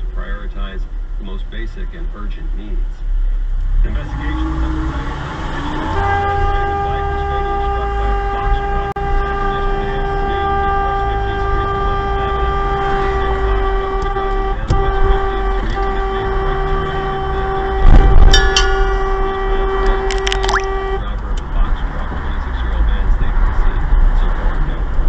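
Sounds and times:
road and engine rumble: 0:00.0 - 0:25.0
car horn: 0:05.6 - 0:21.2.

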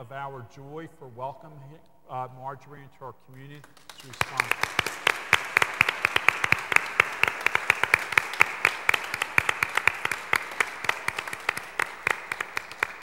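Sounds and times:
congregation applauding: 0:03.5 - 0:13.0.

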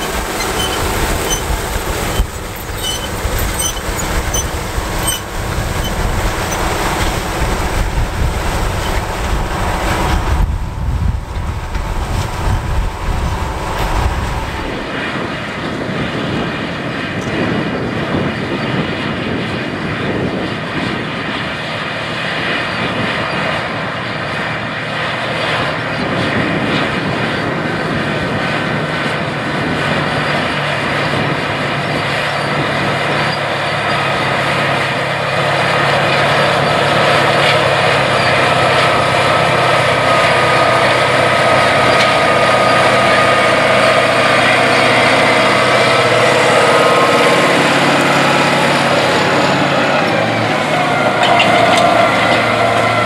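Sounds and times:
diesel tractor engine under load: 0:00.0 - 0:53.0.

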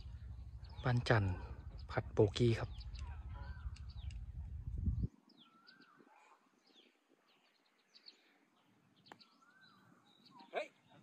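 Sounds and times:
low rumble on microphone: 0:00.0 - 0:05.2
birds chirping and singing: 0:00.0 - 0:11.0.

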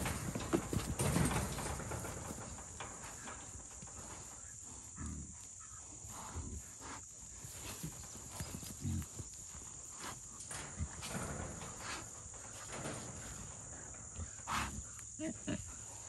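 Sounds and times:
hooves scuffling on dirt: 0:00.0 - 0:16.0.

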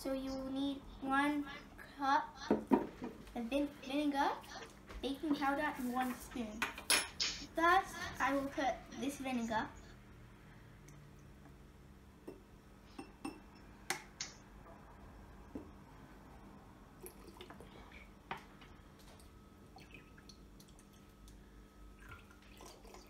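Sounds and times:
liquid pouring into glass: 0:17.0 - 0:17.7, 0:19.7 - 0:21.2, 0:22.0 - 0:23.0.

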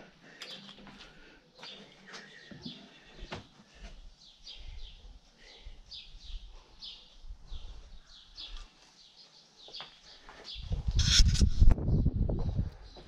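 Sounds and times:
small bird chirping: 0:05.9 - 0:11.7.

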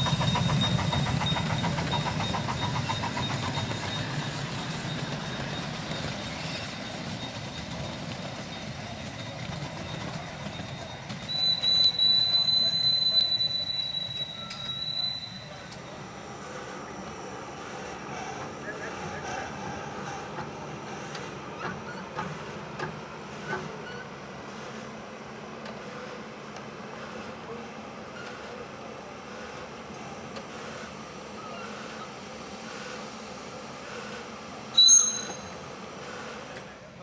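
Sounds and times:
steam locomotive rumble and hiss: 0:00.0 - 0:37.0
high ringing note: 0:34.8 - 0:35.6.

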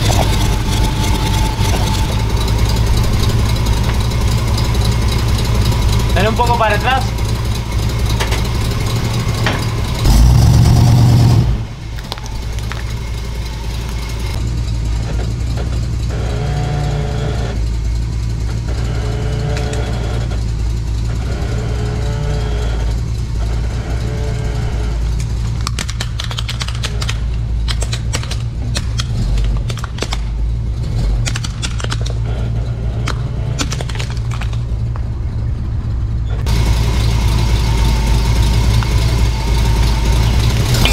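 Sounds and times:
loud burst of engine noise: 0:00.0 - 0:15.2, 0:36.5 - 0:40.9
vehicle engine idling: 0:00.0 - 0:40.9
plastic toy cracking under tire: 0:25.6 - 0:30.3, 0:33.1 - 0:34.6.

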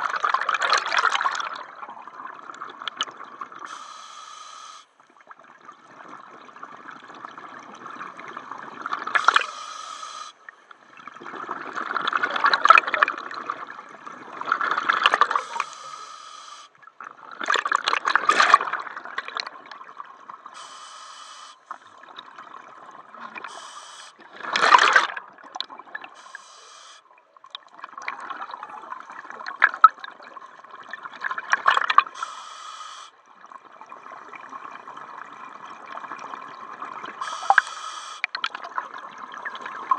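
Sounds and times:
hissing regulator inhalations: 0:03.7 - 0:04.9, 0:09.2 - 0:10.4, 0:15.3 - 0:16.7, 0:20.6 - 0:21.8, 0:23.5 - 0:24.2, 0:26.2 - 0:27.0, 0:32.2 - 0:33.1, 0:37.2 - 0:38.3.

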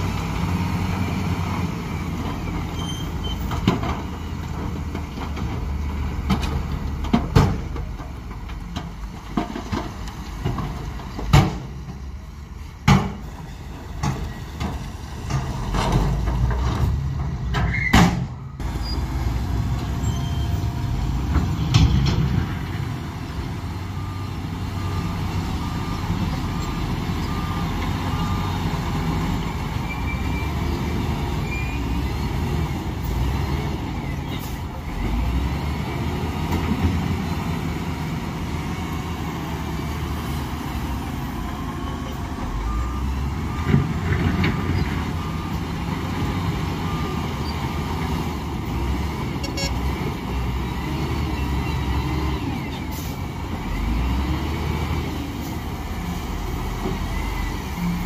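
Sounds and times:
heavy machinery diesel engines: 0:00.0 - 0:58.0
reversing alarm beeping: 0:23.6 - 0:30.6, 0:49.4 - 0:49.8.

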